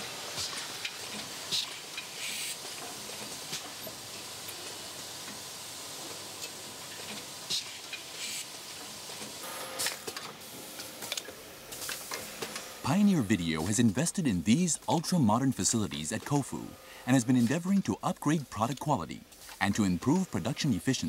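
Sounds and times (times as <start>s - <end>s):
machinery hissing: 11.7s - 21.0s.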